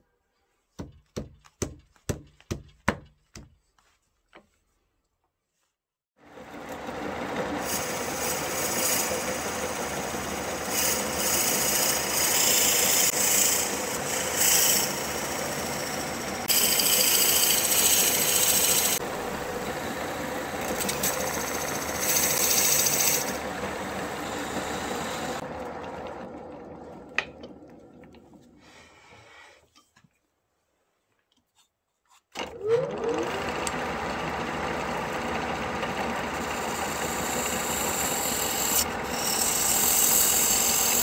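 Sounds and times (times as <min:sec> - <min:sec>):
wood lathe running: 0:06.4 - 0:27.3, 0:32.4 - 0:41.0
drill bit boring wood hiss: 0:07.6 - 0:25.4, 0:36.3 - 0:41.0.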